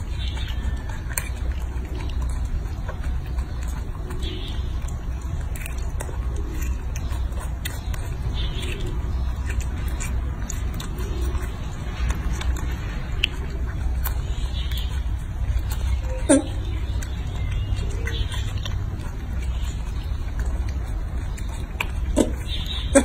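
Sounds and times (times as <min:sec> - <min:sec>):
monkey chewing and lip smacking: 0:00.0 - 0:23.0.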